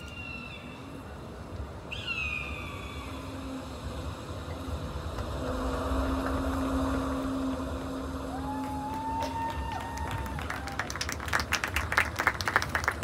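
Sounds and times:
marching band sustained note: 0:02.5 - 0:10.5
falling whoop from crowd: 0:08.2 - 0:11.0.

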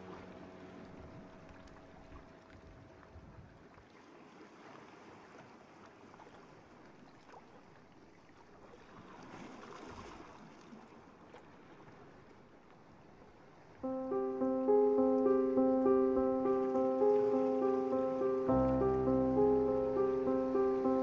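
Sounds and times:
keyboard music: 0:13.8 - 0:21.0.

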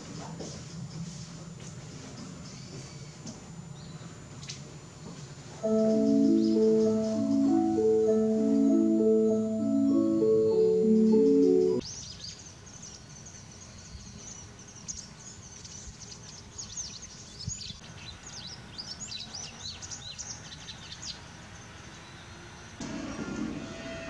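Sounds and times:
mallet instrument tune: 0:05.6 - 0:11.8.

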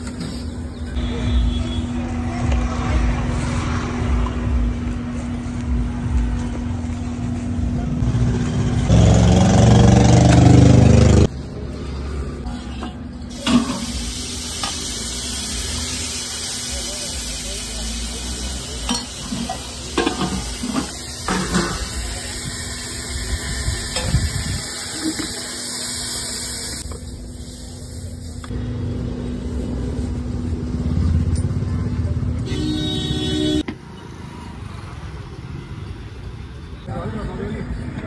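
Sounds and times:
street traffic noise: 0:00.0 - 0:38.0
food sizzling: 0:13.3 - 0:28.5.

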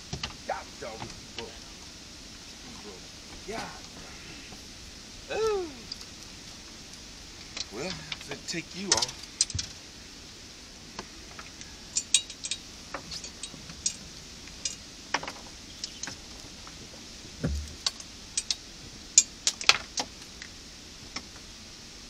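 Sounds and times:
fishing tackle clicking and clinking: 0:11.9 - 0:14.0, 0:17.8 - 0:18.6
dull thump: 0:17.4 - 0:17.8.

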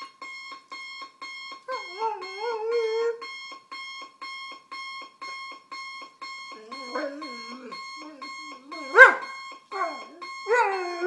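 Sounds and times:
alarm clock beeping: 0:00.0 - 0:11.0
dog howling: 0:06.6 - 0:11.0.

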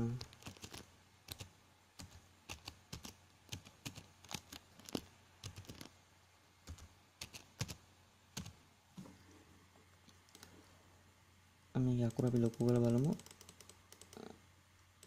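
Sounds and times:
typing on computer keyboard: 0:00.2 - 0:05.9, 0:06.7 - 0:07.8, 0:12.1 - 0:14.3.

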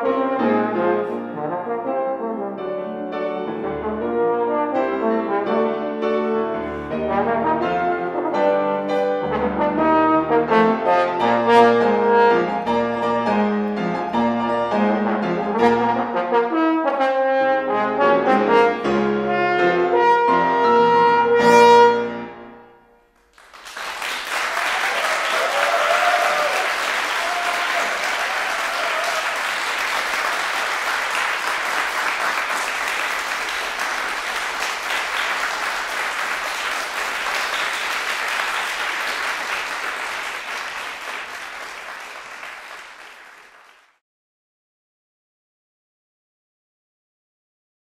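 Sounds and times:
trombone and piano playing: 0:00.0 - 0:23.1
audience applauding: 0:23.2 - 0:44.0.

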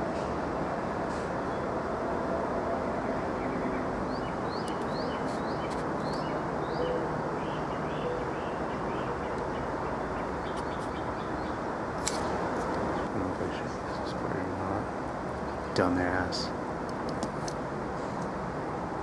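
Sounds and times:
highway traffic: 0:00.0 - 0:19.0
bird chirping: 0:03.0 - 0:14.2.

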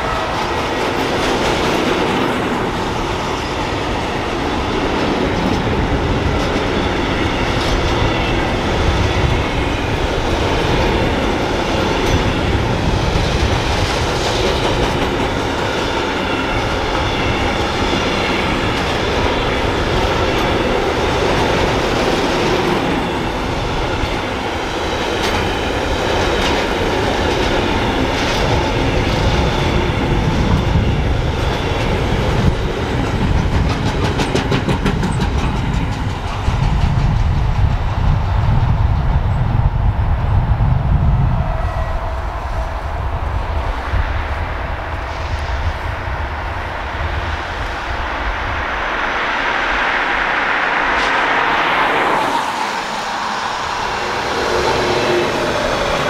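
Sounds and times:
train wheels clattering on rails: 0:00.0 - 0:39.6.

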